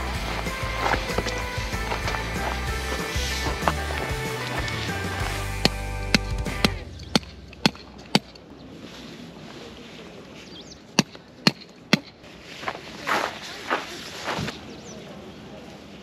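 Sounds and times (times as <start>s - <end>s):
soft rustling: 12.2s - 14.8s.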